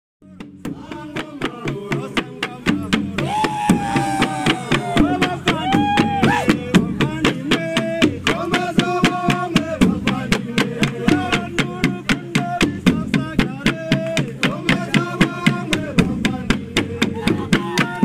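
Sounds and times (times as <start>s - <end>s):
wooden drums beaten with sticks: 0.2s - 18.0s
voices chanting: 0.8s - 12.8s.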